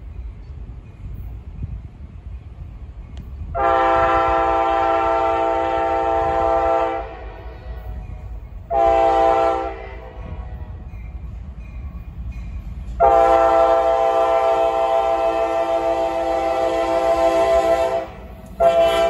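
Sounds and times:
low rumble of train: 0.0s - 19.0s
locomotive air horn blasts: 3.5s - 8.0s, 8.7s - 10.4s, 13.0s - 19.0s.

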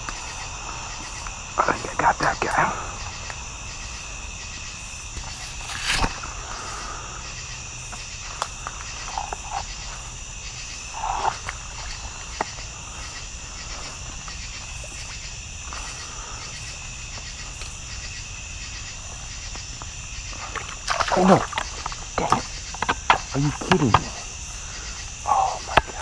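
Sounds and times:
insects droning: 0.0s - 26.0s
rustles: 4.6s - 18.1s.

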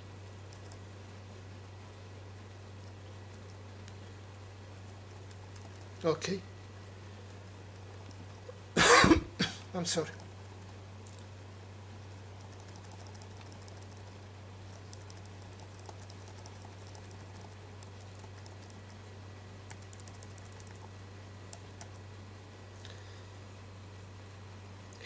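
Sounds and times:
steady low hum: 0.0s - 25.0s
laptop keys clicking: 0.5s - 0.8s, 4.9s - 6.0s, 12.4s - 14.1s, 14.7s - 19.0s, 19.7s - 20.9s.

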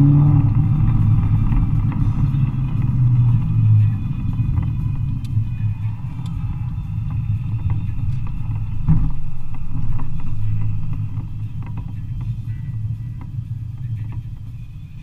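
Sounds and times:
car engine and tyre rumble: 0.0s - 15.0s
brief thump: 8.9s - 9.2s.

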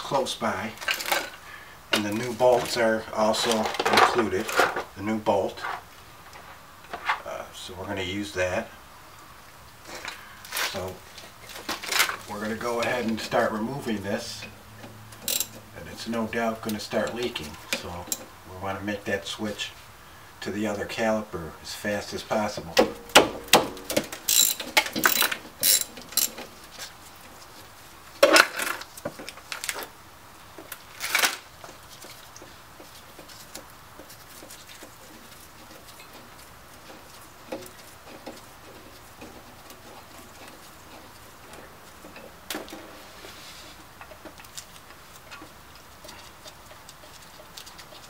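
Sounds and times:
metal clinks and knocks: 15.2s - 15.6s, 22.9s - 26.5s
metal scrape: 42.7s - 43.9s.

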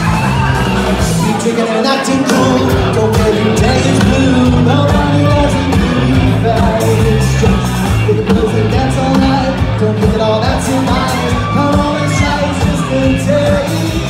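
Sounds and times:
rock band playing loudly: 0.0s - 14.0s
person singing: 1.0s - 14.0s.

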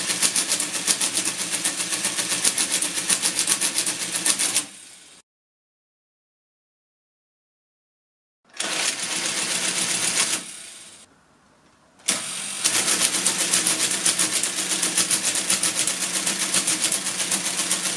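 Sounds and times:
mechanical calculator clattering: 0.0s - 4.7s, 12.0s - 17.9s.

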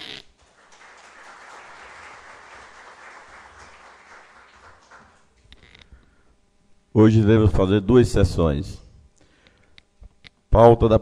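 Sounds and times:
crowd applauding: 0.0s - 5.3s.

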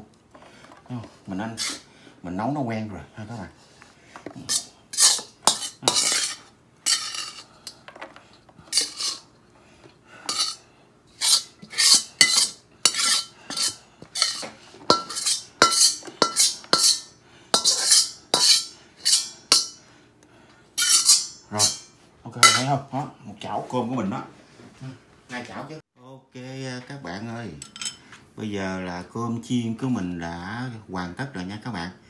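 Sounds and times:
metal spatula scraping frying pan: 1.5s - 1.9s, 4.5s - 7.8s, 8.7s - 9.3s, 10.3s - 19.8s, 20.8s - 22.8s.

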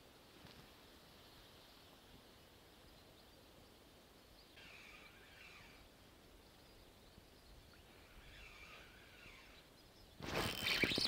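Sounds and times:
faint bird twittering: 2.8s - 11.0s.

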